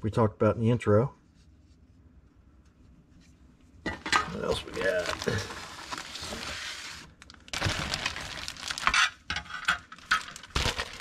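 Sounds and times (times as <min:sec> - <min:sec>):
plastic bag crinkling: 0:04.2 - 0:11.0.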